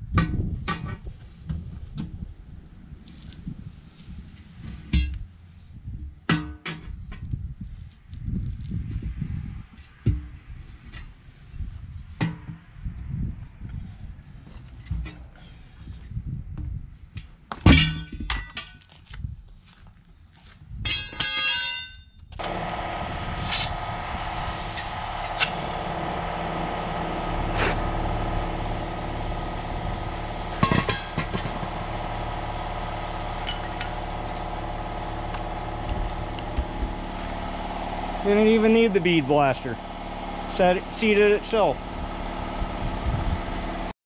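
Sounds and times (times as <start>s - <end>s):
tire irons clanking on wheel rim: 20.9s - 43.9s.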